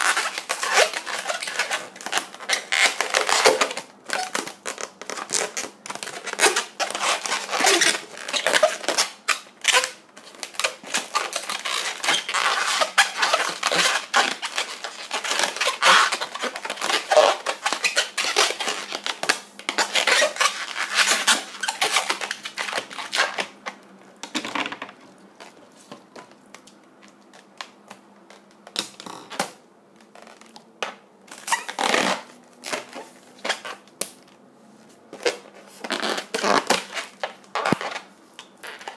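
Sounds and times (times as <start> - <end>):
balloon squeaking and creaking: 0.0 - 25.0, 28.4 - 30.6, 31.3 - 33.9, 35.1 - 38.9.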